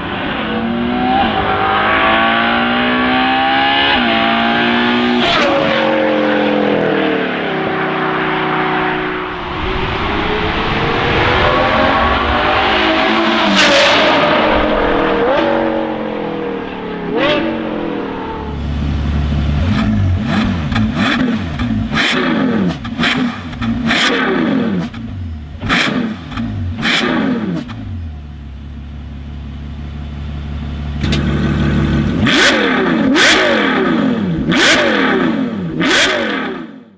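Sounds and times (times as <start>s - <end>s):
car engine idling: 14.4s - 21.0s, 27.7s - 32.3s
car engine driving under power: 27.6s - 33.3s
engine free-revving: 31.0s - 36.9s.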